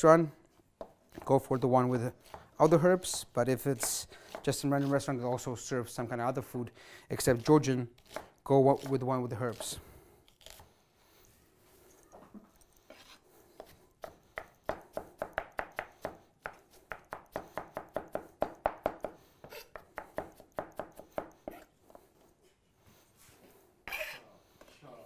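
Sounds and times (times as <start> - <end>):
knife chopping on cutting board: 8.0 - 9.7, 13.6 - 21.6.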